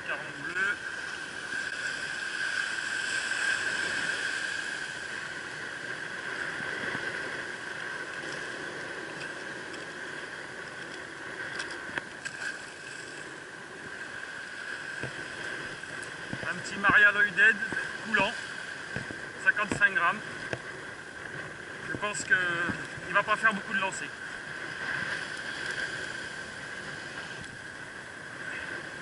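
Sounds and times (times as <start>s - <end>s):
surf rushing over reef: 0.0s - 29.0s.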